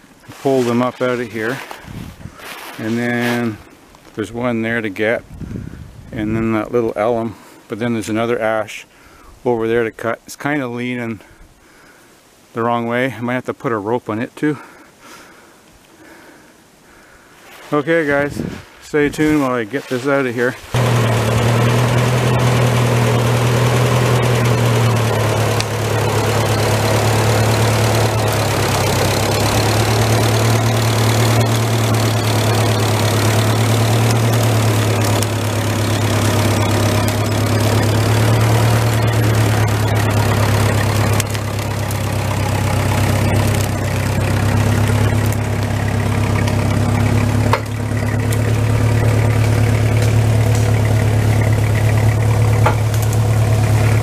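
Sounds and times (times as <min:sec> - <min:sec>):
tractor engine running: 0:00.0 - 0:04.8, 0:19.1 - 0:54.0.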